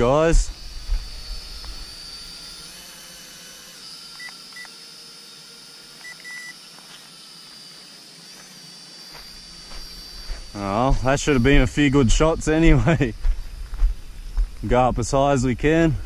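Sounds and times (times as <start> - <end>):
drone motors high whine: 0.0 - 16.0
remote control short beeps: 6.0 - 6.5.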